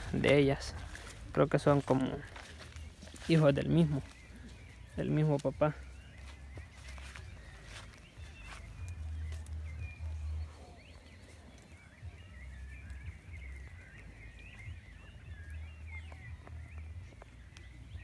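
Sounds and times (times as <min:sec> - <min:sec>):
wind buffeting microphone: 0:00.0 - 0:03.3
small birds chirping: 0:00.0 - 0:18.0.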